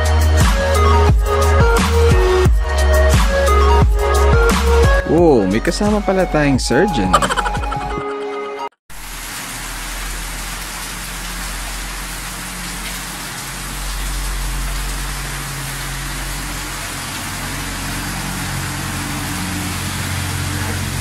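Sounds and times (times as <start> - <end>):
heavy rain pouring: 8.9 - 21.0.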